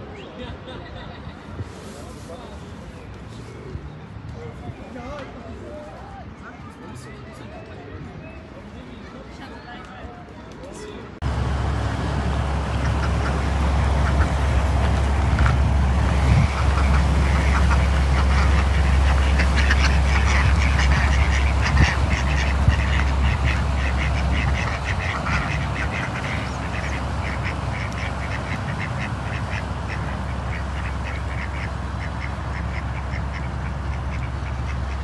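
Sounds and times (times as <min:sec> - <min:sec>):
low steady rumble: 0:11.2 - 0:35.0
ducks quacking: 0:12.2 - 0:35.0.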